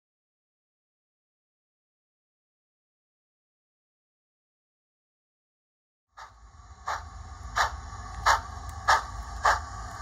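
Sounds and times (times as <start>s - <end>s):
model steam locomotive chuffs: 6.1s - 10.0s
low steady hum: 6.2s - 10.0s.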